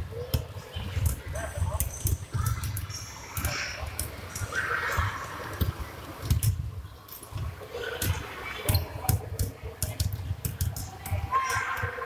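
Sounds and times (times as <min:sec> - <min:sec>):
basketballs bouncing on wooden floor: 0:07.4 - 0:12.0.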